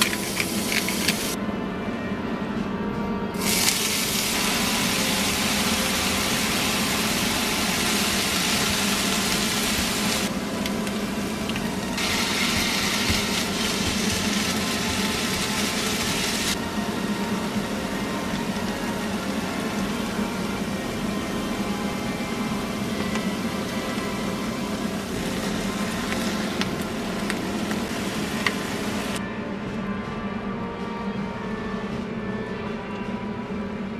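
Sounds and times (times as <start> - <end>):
food sizzling in a frying pan: 3.4 - 16.6, 22.6 - 29.2.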